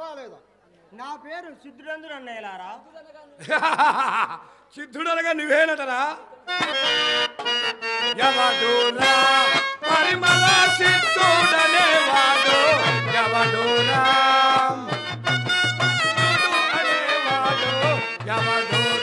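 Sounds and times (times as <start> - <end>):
harmonium melody: 6.4 - 19.0.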